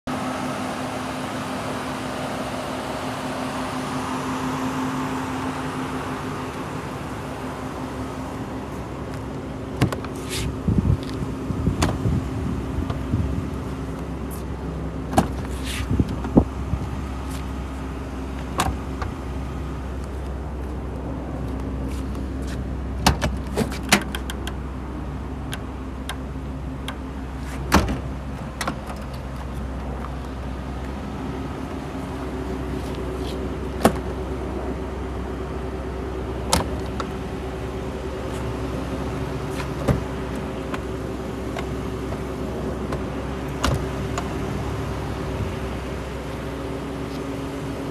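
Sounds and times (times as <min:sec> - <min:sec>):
car doors and latches clicking: 0:09.8 - 0:10.4, 0:23.0 - 0:24.6, 0:33.8 - 0:34.2, 0:36.4 - 0:37.2, 0:39.4 - 0:44.4.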